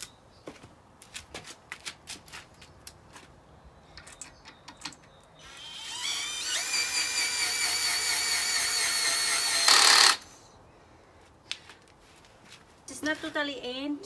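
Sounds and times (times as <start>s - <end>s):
cordless drill driving a screw: 5.4s - 10.3s.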